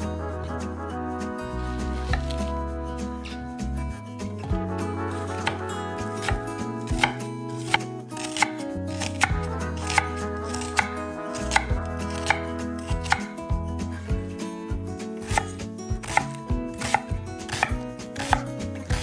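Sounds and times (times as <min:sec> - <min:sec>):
knife slicing onion: 0:01.8 - 0:02.5, 0:05.1 - 0:14.0, 0:15.0 - 0:19.0.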